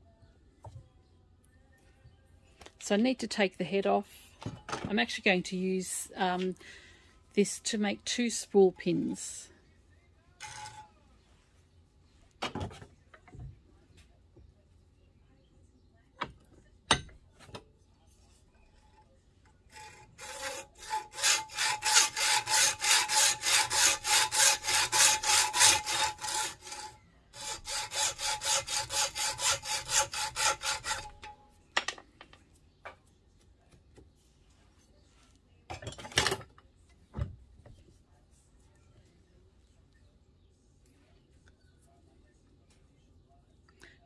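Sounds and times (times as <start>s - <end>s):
hacksaw cutting metal: 10.4s - 10.9s, 19.7s - 31.4s.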